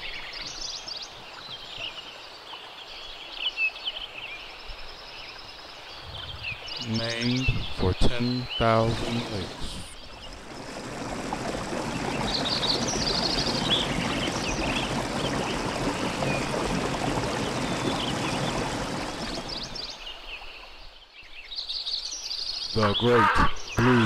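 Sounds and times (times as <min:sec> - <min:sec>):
small birds chirping: 0:00.0 - 0:23.9
water rushing: 0:05.6 - 0:20.7.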